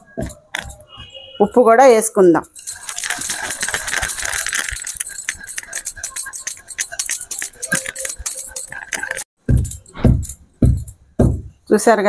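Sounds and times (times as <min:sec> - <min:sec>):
pestle pounding in stone mortar: 0:09.4 - 0:11.5.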